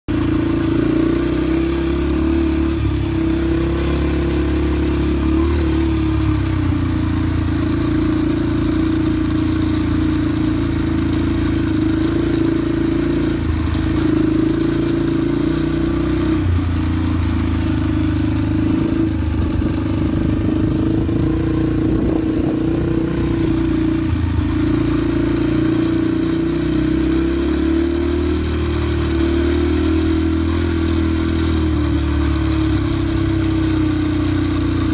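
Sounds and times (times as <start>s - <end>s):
two-stroke engine running: 0.1s - 34.9s.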